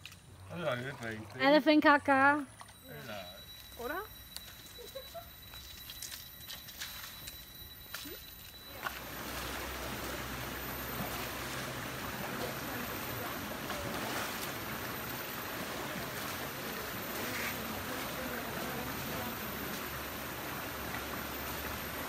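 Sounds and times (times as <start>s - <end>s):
river water splashing and rushing: 8.7s - 22.0s.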